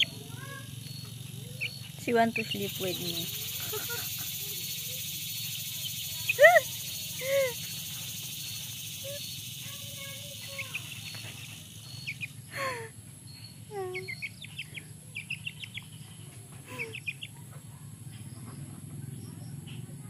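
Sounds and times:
high insect drone: 0.0 - 17.2
bird chirps: 0.0 - 20.0.

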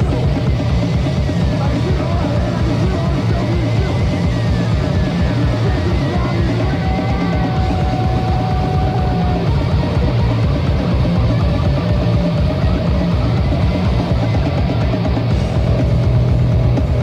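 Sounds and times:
drum kit beat: 0.0 - 17.0
punk rock band playing: 0.0 - 17.0.

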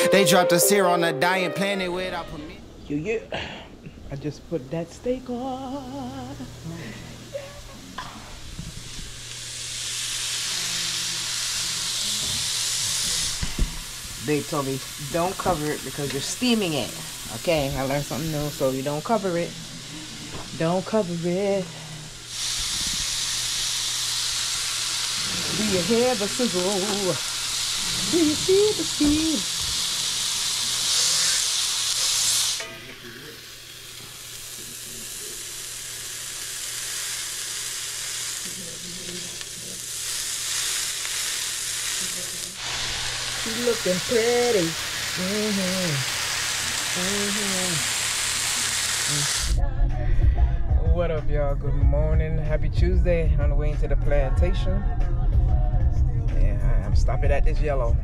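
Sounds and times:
steak sizzling on a grill: 8.4 - 49.6.

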